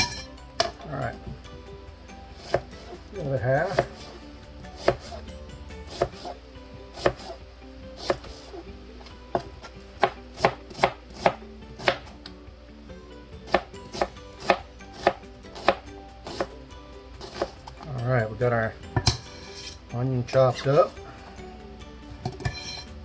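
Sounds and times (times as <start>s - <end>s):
knife chopping on cutting board: 2.4s - 2.8s, 3.6s - 4.0s, 4.8s - 5.2s, 5.9s - 6.4s, 7.0s - 7.4s, 9.3s - 12.1s, 13.5s - 16.6s, 17.2s - 17.6s.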